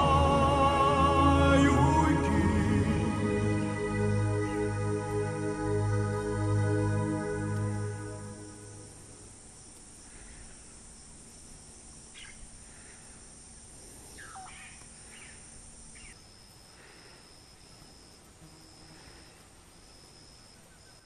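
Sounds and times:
insect chorus: 0:00.0 - 0:21.0
pulsing high insect tone: 0:00.0 - 0:21.0
light hiss: 0:02.1 - 0:21.0
bird calls: 0:12.1 - 0:13.2, 0:13.9 - 0:16.2.

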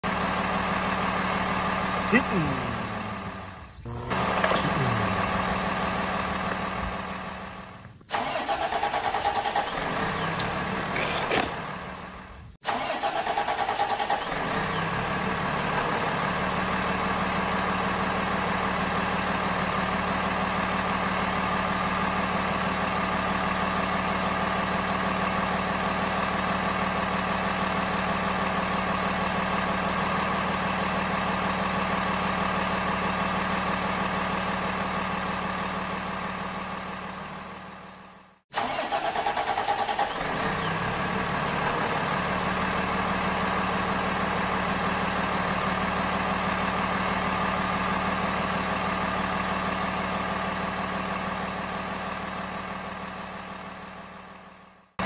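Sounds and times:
truck engine idling: 0:00.0 - 0:55.0.

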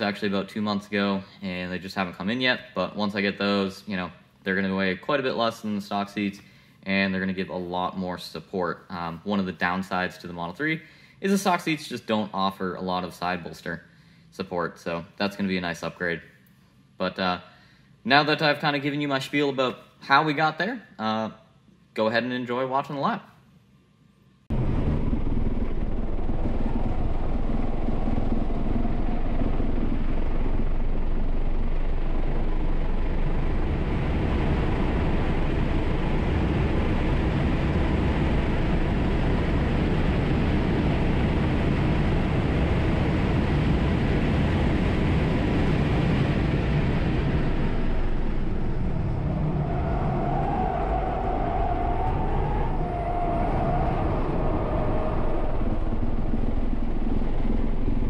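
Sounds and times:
wind and road noise in car: 0:24.5 - 0:58.0.

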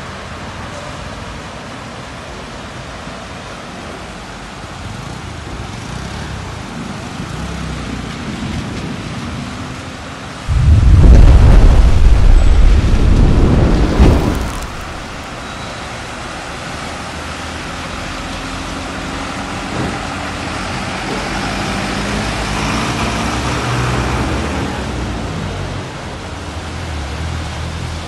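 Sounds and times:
loud low rumble: 0:10.5 - 0:15.4
low engine hum: 0:10.5 - 0:15.4
tyres splashing through water: 0:10.6 - 0:15.6.

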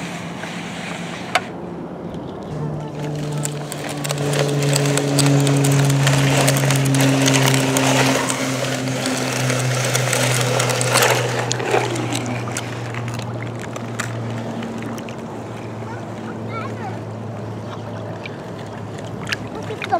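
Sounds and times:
toy tracks scraping in sand: 0:00.0 - 0:01.6, 0:02.5 - 0:15.9
steady low drone: 0:00.0 - 0:19.6.

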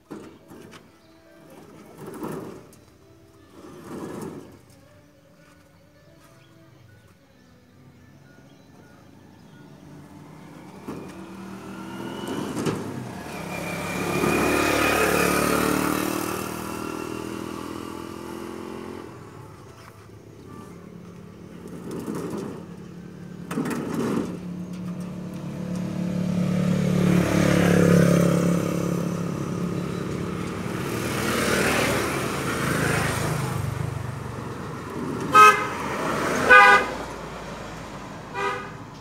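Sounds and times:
vehicle passing on road: 0:09.5 - 0:39.0
vehicle horn short toots: 0:35.3 - 0:35.8, 0:36.4 - 0:37.0, 0:38.3 - 0:38.8.

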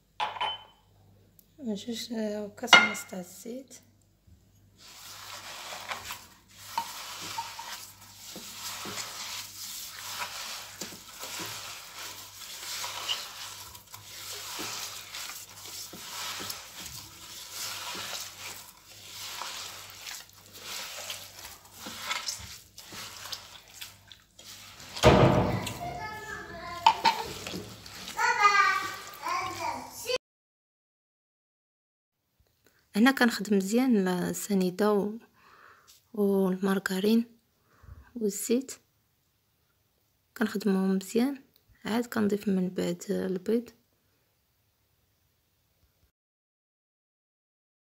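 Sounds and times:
soft scraping of dough: 0:04.5 - 0:29.9
child's voice: 0:25.4 - 0:27.4, 0:28.1 - 0:30.2.

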